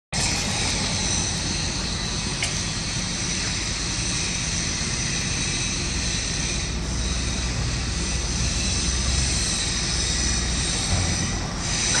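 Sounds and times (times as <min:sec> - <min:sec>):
high whine: 0:00.1 - 0:12.0
diesel engine idling: 0:00.2 - 0:12.0.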